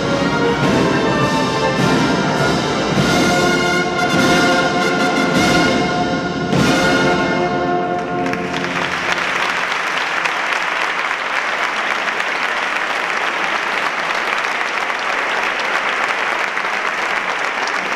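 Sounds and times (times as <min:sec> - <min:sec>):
audience applause: 0:08.0 - 0:17.9.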